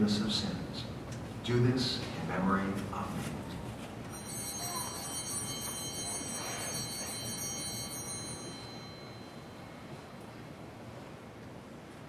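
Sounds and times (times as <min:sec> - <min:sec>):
bell ringing: 0:04.1 - 0:10.2.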